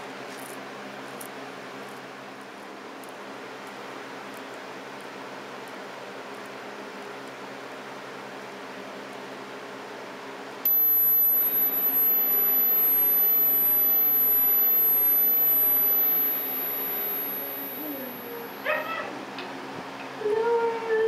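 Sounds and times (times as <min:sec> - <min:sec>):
high pure test tone: 0:10.7 - 0:18.7.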